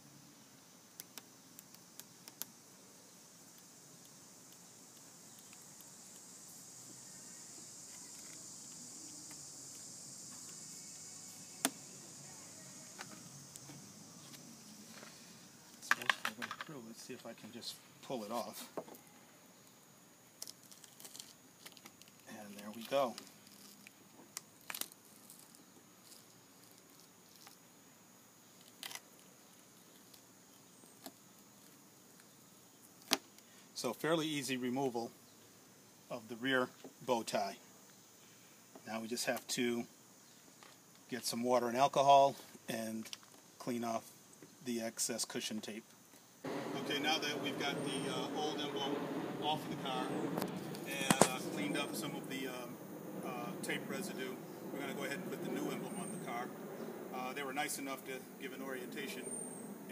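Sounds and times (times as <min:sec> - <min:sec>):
faint background hiss: 0:00.0 - 0:59.9
high-pitched insect drone: 0:02.5 - 0:16.3, 0:46.4 - 0:59.9.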